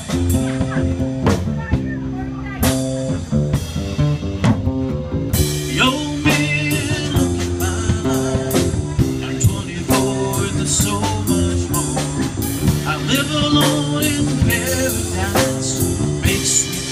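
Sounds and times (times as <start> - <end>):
acoustic bass guitar: 0.0 - 16.9
drum kit: 0.0 - 16.9
man singing: 5.4 - 16.9.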